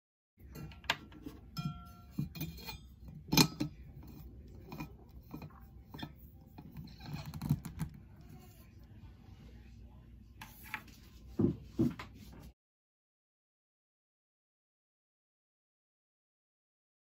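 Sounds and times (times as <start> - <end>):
metal lid twisting: 0.5 - 8.0.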